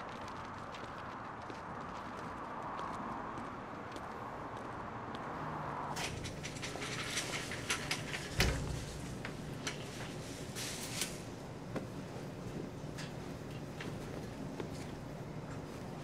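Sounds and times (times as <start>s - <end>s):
wire laundry cart rattling: 6.0s - 11.4s
clothes being handled: 6.0s - 16.0s
low hum of machines: 6.0s - 16.0s.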